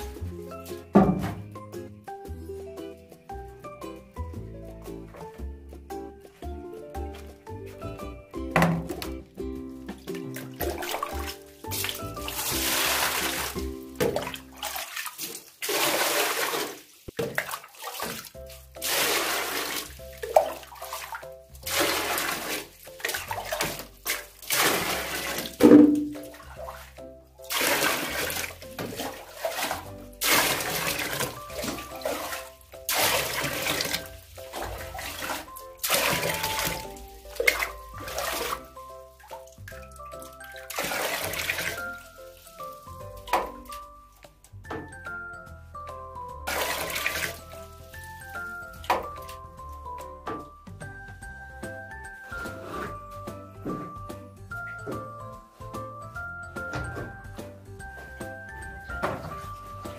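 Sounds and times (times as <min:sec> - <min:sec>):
background music: 0:00.0 - 0:59.9
water poured into plastic basin: 0:08.6 - 0:43.9, 0:46.4 - 0:49.4.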